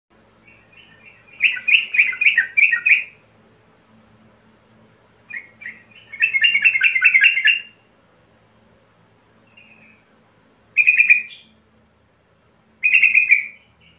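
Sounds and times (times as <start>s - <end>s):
bulbul singing chattering notes: 0.4s - 3.4s, 5.3s - 7.8s, 12.8s - 13.9s.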